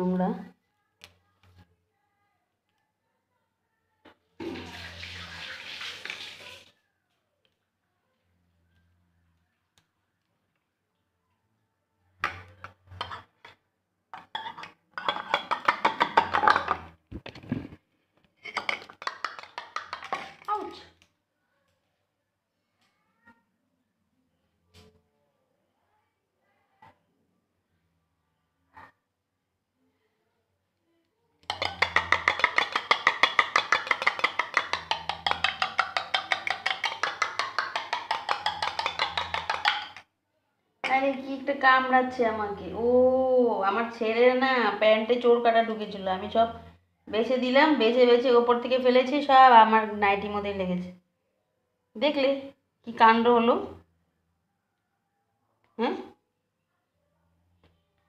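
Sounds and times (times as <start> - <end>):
metal spoon clinking in a mug: 14.2 - 16.8, 31.4 - 40.0.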